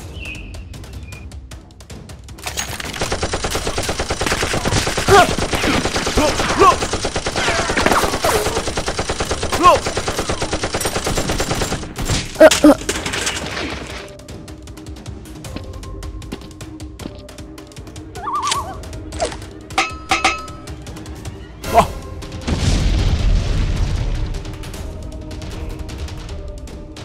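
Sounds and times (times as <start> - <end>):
automatic gunfire: 2.6 - 12.0.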